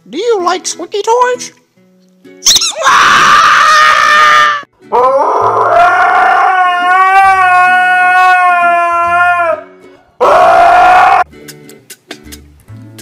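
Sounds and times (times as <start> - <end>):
husky howling: 3.0 - 9.6, 10.2 - 11.3.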